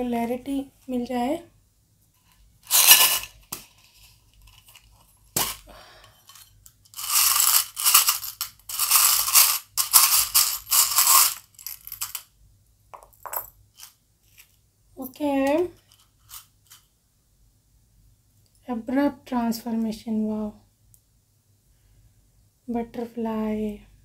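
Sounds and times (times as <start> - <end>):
metal charms rattling in tin: 2.7 - 5.6, 6.2 - 12.2.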